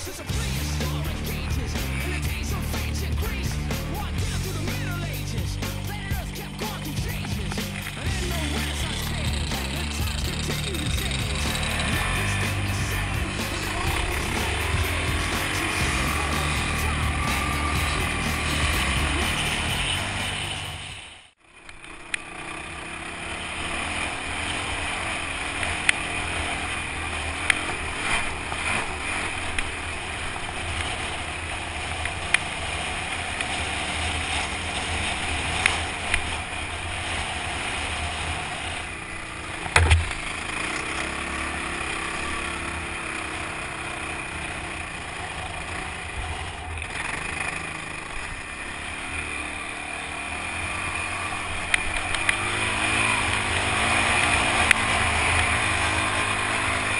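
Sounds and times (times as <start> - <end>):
off-road vehicle engine running: 0.0 - 56.9
low thump: 39.7 - 40.2
sharp knocks from bumps: 39.7 - 41.0.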